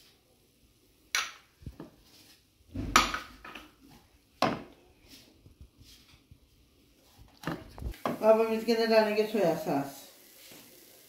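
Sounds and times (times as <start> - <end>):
wooden spatula scraping a wok: 4.9 - 6.3.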